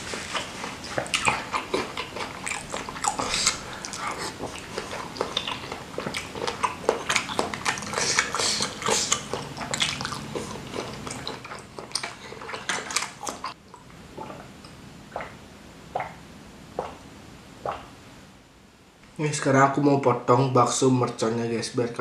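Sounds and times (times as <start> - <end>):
wet chewing and lip smacking: 0.0 - 15.3
gulps of water: 0.0 - 18.0.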